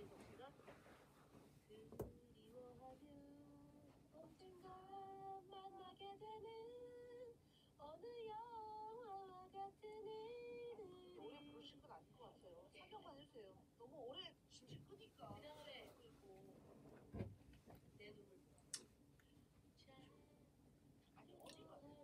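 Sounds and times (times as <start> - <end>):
faint woman singing: 1.7 - 11.9.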